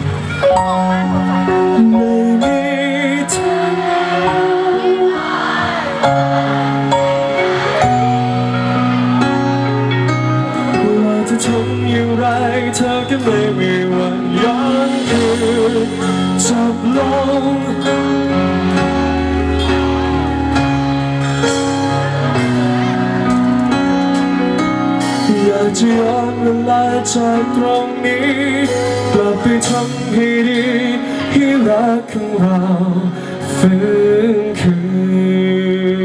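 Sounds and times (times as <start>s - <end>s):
bass line: 0.0s - 36.0s
keyboard chords: 0.0s - 36.0s
man singing: 1.3s - 8.3s, 10.0s - 19.1s, 25.0s - 36.0s.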